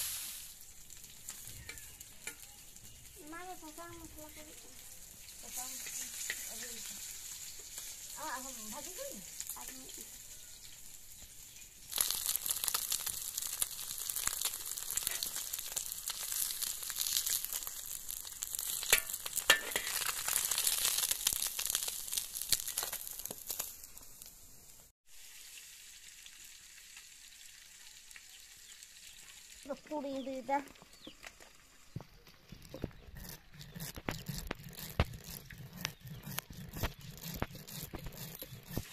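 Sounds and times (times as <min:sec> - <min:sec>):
faint hiss: 0:00.0 - 0:02.1, 0:23.2 - 0:32.0
fish sizzling in hot oil: 0:00.0 - 0:32.1.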